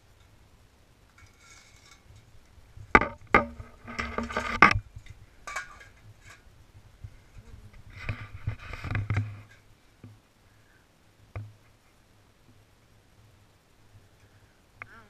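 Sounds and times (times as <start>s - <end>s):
crabs rattling in pot: 1.2s - 6.5s.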